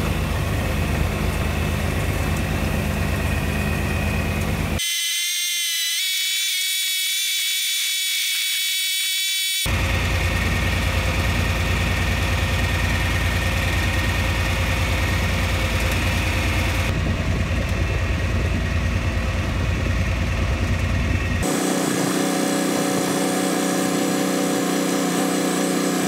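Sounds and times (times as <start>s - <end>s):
tractor engine running: 0.0s - 4.8s, 9.7s - 26.0s.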